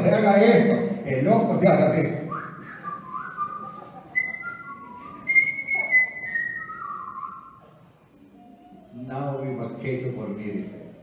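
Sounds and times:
man whistling a tune: 0:02.2 - 0:07.6.

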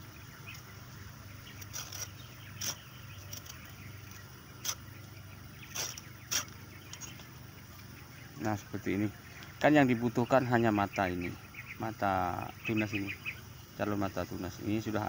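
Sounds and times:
saw scraping across stem: 0:01.5 - 0:04.9, 0:05.6 - 0:07.2.

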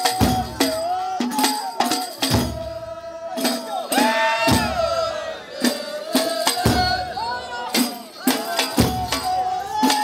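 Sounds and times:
frame drums beaten: 0:00.0 - 0:10.0
men's chorus singing: 0:00.0 - 0:10.0.

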